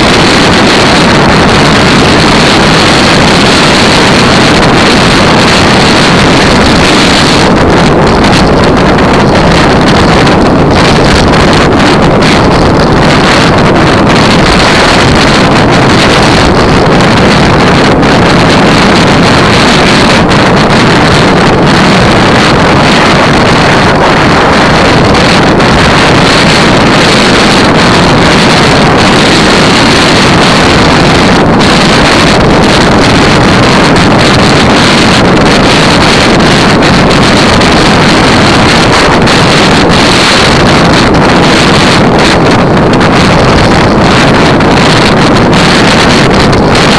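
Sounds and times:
wind buffeting microphone: 0.0 - 46.9.

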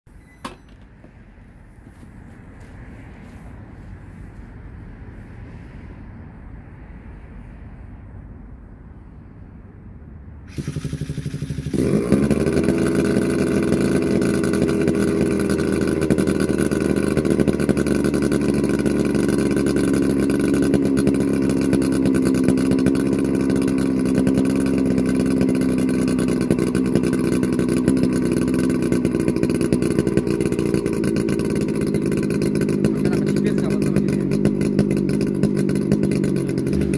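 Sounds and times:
drone gasoline engine running: 10.5 - 36.9.

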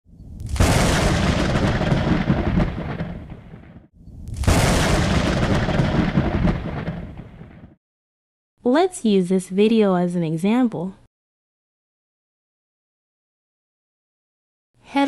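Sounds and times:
thunder crack and rumble: 0.3 - 7.8.

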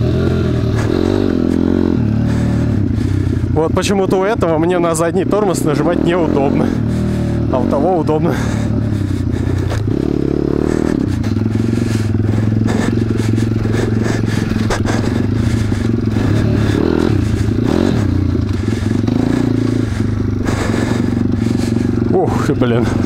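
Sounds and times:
motorbike engine revving: 0.0 - 23.0.

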